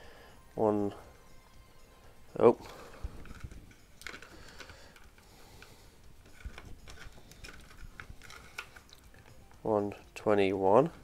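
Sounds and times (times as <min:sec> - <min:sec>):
hands handling plastic box: 0:06.3 - 0:09.1.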